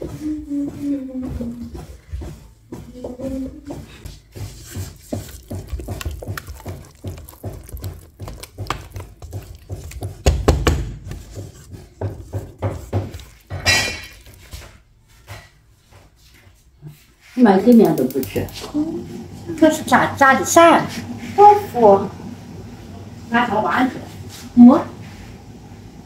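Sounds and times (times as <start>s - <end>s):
spatula scraping metal bowl: 3.7s - 15.6s.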